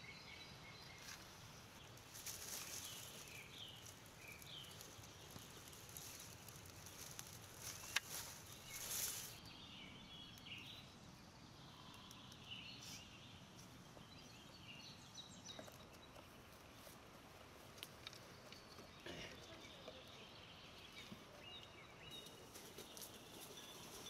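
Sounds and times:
small birds chirping: 0.0s - 24.0s
fire crackling: 1.8s - 9.5s.

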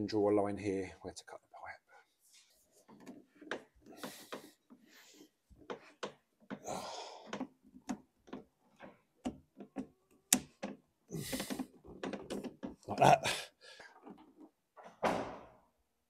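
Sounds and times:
plastic pipe knocks and clicks: 5.6s - 10.8s, 11.4s - 12.9s
plastic scraping rub: 11.1s - 12.8s.

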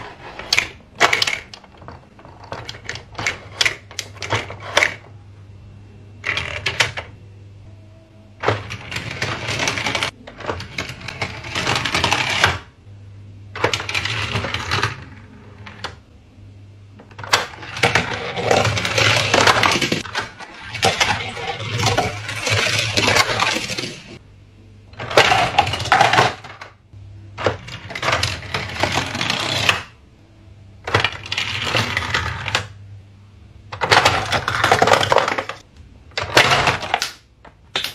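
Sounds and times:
low hum: 0.0s - 36.9s
toy cars and track clattering: 8.4s - 12.7s, 13.6s - 15.0s, 17.2s - 24.2s, 25.0s - 26.7s, 27.4s - 29.9s, 33.8s - 35.6s.

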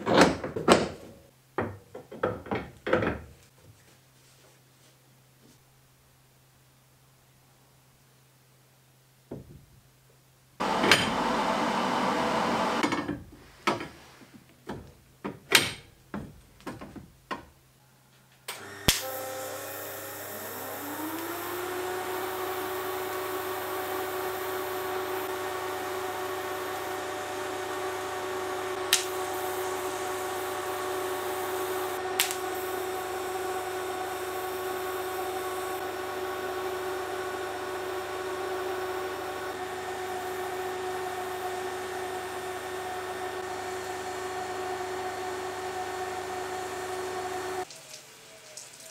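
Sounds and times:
welder hum and hiss: 18.5s - 35.9s.

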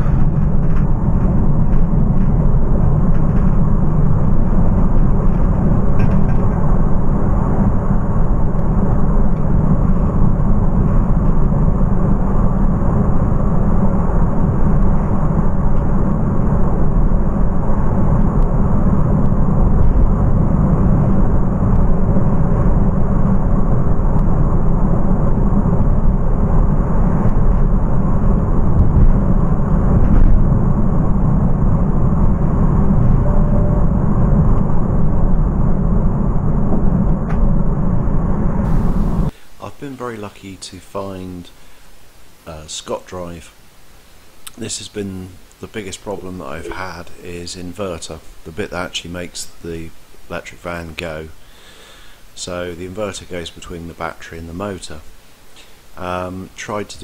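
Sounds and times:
tyre and wind noise: 0.0s - 39.4s.

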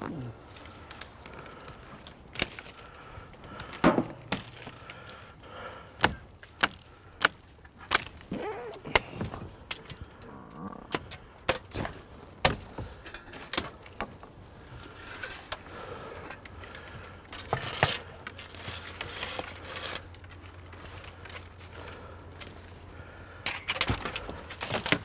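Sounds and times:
twigs snapping: 0.0s - 13.0s
branches and leaves rustling: 0.0s - 25.0s.

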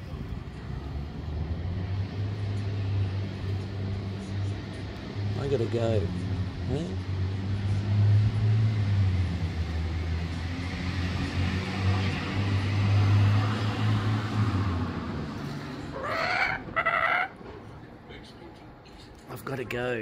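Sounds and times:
city traffic noise: 0.0s - 20.0s
kookaburra calling: 15.9s - 17.4s.

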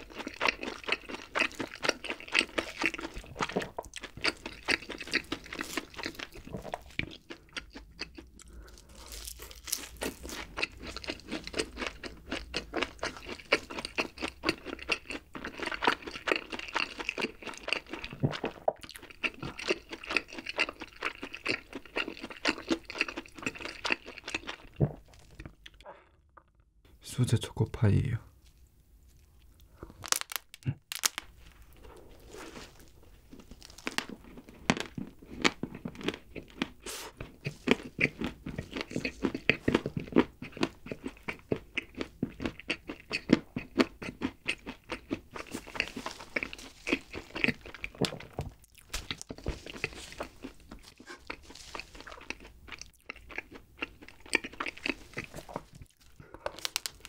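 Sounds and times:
wet chewing mouth clicks: 34.8s - 57.0s.

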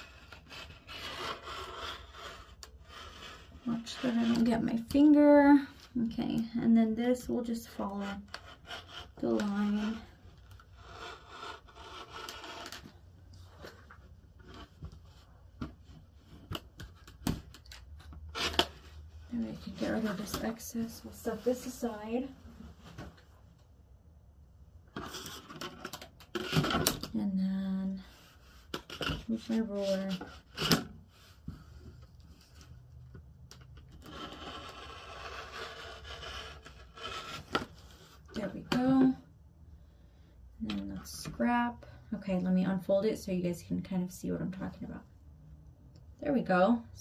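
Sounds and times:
rotary cutter scraping fabric: 0.0s - 4.6s, 7.8s - 13.0s, 34.0s - 37.6s.

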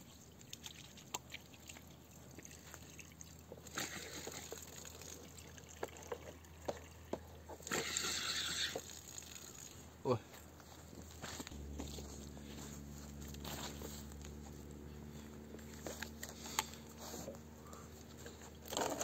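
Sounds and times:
water from hose splashing on grass: 0.0s - 6.7s, 7.6s - 10.0s
water dripping: 8.8s - 9.9s.

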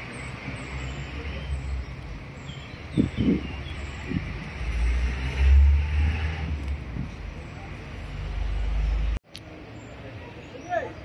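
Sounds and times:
high bird chirps: 0.0s - 4.3s
low street rumble: 0.0s - 11.0s.

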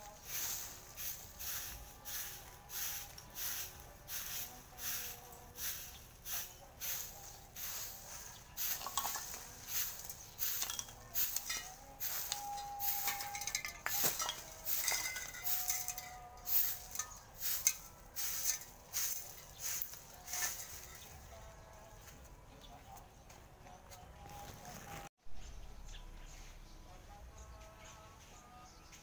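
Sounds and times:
broom sweeping ground: 0.0s - 22.2s.

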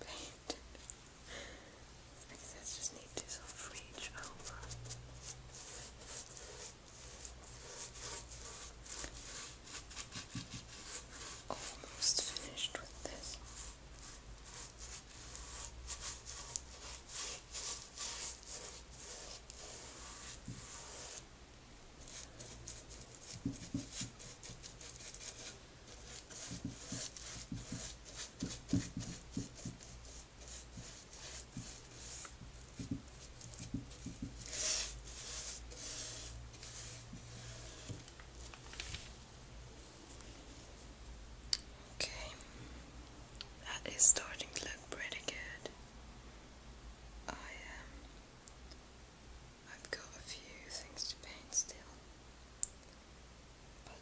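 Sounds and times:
paintbrush scratchy strokes: 2.6s - 21.2s, 22.0s - 38.6s.

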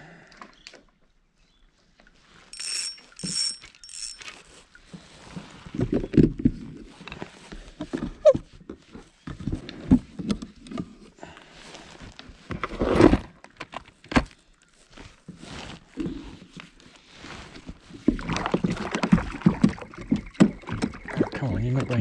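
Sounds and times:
fishing gear knocking and rattling: 2.6s - 4.5s.

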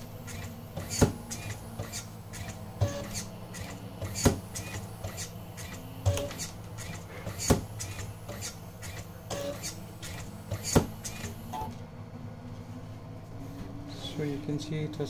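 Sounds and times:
motors humming: 0.0s - 15.0s
cutting blades clicking: 0.2s - 11.4s.

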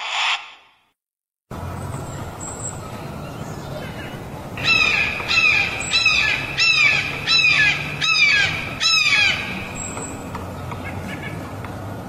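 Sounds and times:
hawk crying: 4.6s - 9.7s.

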